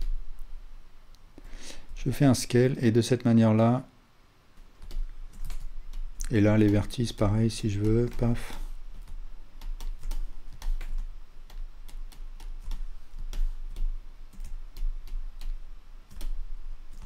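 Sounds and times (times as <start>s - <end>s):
steady low hum: 0.0s - 17.0s
keyboard and mouse clicking: 4.7s - 16.4s.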